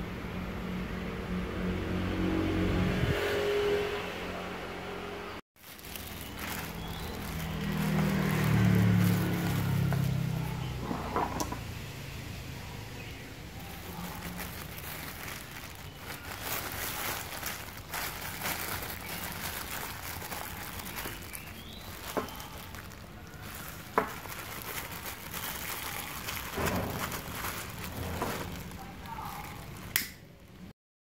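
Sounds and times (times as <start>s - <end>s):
plastic bag crinkling: 5.6s - 11.5s, 13.5s - 30.7s.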